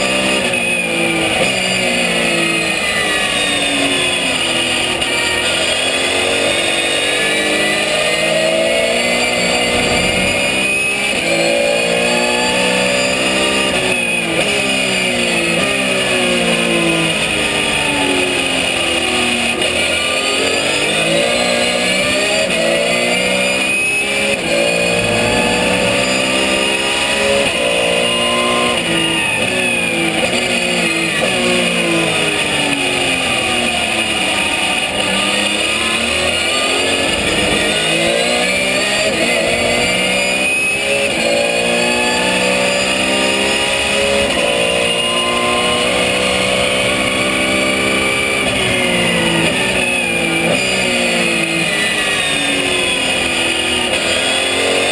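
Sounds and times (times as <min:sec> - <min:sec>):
high whine: 0:00.0 - 0:41.2
race car engine revving: 0:00.0 - 0:54.9.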